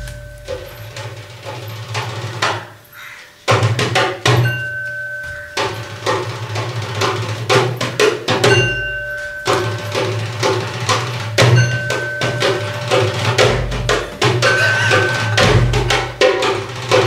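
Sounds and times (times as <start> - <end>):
hand drumming on wooden box: 3.5 - 17.0
held high note: 11.6 - 16.6.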